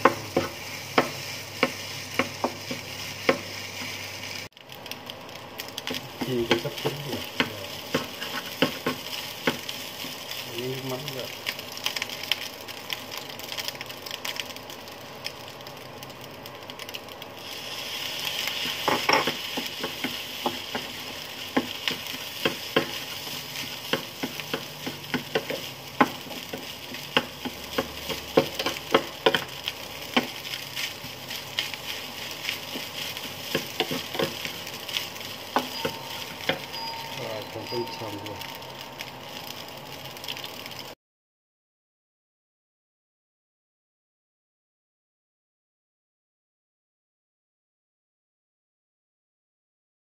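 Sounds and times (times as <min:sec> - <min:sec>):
spatula tapping a pan: 0:00.0 - 0:03.9, 0:05.8 - 0:09.7, 0:18.6 - 0:37.2
spatula stirring and scraping: 0:00.0 - 0:04.5, 0:05.8 - 0:10.5, 0:17.4 - 0:39.5
rice sizzling in a pan: 0:00.0 - 0:41.0.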